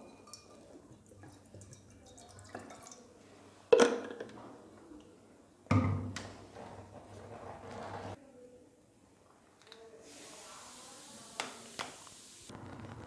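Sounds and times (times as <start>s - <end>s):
water pouring into a saucepan: 0.0s - 3.2s.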